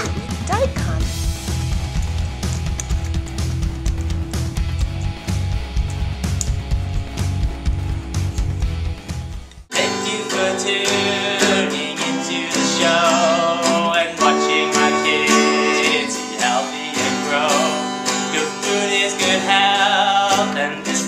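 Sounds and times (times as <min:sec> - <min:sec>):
acoustic guitar strumming chords: 0:00.0 - 0:21.0
man singing: 0:09.7 - 0:21.0.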